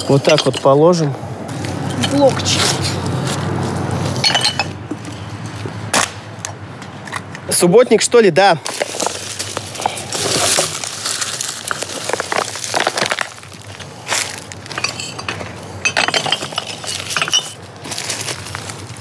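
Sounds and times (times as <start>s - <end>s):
glass bottles clinking: 0.0s - 0.9s, 4.2s - 4.8s, 14.6s - 17.7s.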